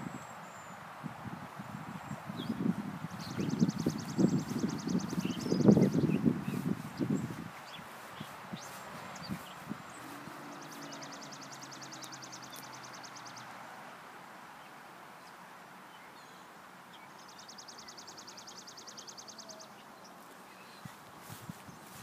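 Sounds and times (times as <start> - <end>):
outdoor background noise: 0.0 - 22.0
footsteps: 4.4 - 11.2, 20.2 - 22.0.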